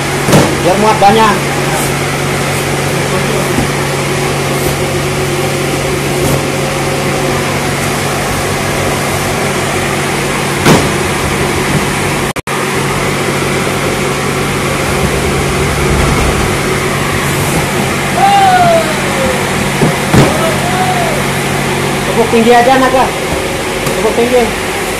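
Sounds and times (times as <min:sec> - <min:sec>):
machine drone with low hum: 0:00.0 - 0:24.9.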